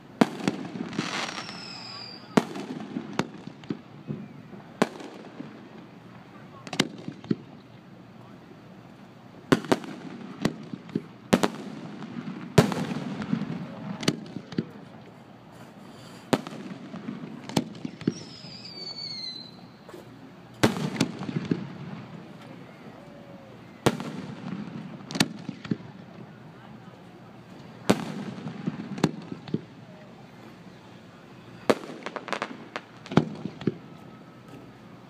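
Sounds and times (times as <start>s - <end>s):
fireworks bursting with echo: 0.0s - 7.6s, 9.4s - 15.2s, 15.8s - 26.8s, 27.5s - 29.9s, 31.6s - 34.8s
falling high whistle: 1.2s - 2.4s, 18.1s - 20.0s.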